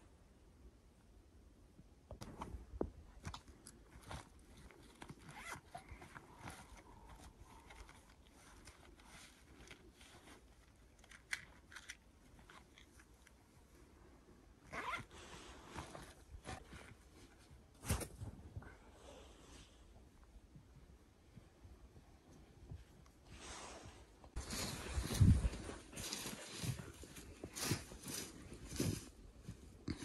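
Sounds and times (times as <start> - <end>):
camping gear clicks and rustles: 2.2 - 13.8, 14.6 - 18.4, 24.3 - 30.0
footsteps crunching in snow: 24.4 - 29.8.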